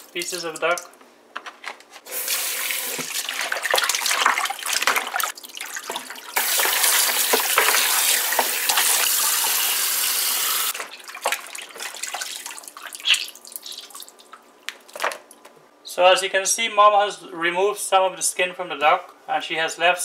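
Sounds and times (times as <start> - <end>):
tap running: 2.1 - 10.9
hands sloshing meat in water: 2.9 - 9.1, 10.8 - 15.0.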